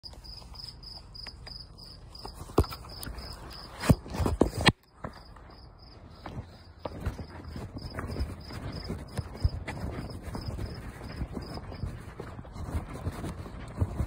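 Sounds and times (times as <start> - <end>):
cricket chirping: 0.0 - 4.0, 4.8 - 12.0.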